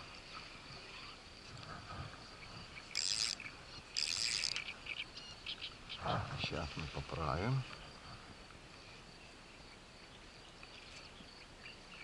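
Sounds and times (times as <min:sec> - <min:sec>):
insects chirring: 0:00.0 - 0:12.0
high insect rasps: 0:00.4 - 0:06.1.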